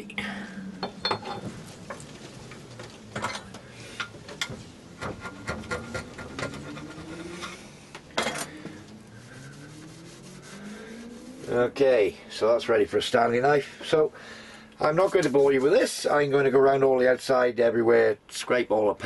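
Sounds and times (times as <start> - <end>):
rag brushing flakes: 8.8 - 12.0, 14.8 - 15.9.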